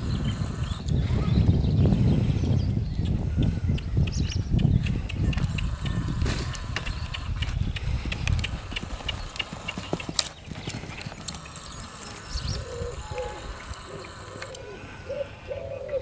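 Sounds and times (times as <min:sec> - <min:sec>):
hoofbeats in sand: 0:02.4 - 0:14.6
pigeon cooing: 0:08.7 - 0:16.0.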